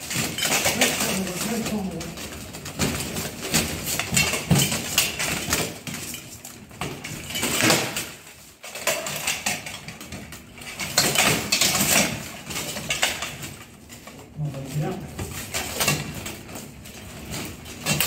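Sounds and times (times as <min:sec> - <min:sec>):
plate armour clanking: 0:00.0 - 0:10.1
weapons clattering against armour: 0:00.0 - 0:18.0.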